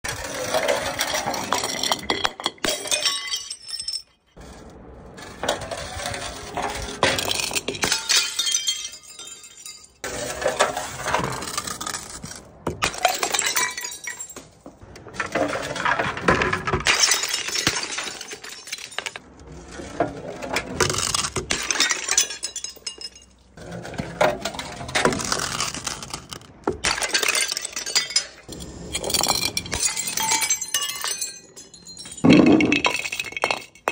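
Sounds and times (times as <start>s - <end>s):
glass bottles rolling down stone steps: 0.0s - 33.9s
glass shards clinking: 0.9s - 4.4s, 7.0s - 10.1s, 12.8s - 14.5s, 16.8s - 19.2s, 20.8s - 23.6s, 26.8s - 33.9s
glass smashing: 0.9s - 4.4s, 7.0s - 10.1s, 12.7s - 14.6s, 15.5s - 19.2s, 20.8s - 23.6s, 26.8s - 33.9s.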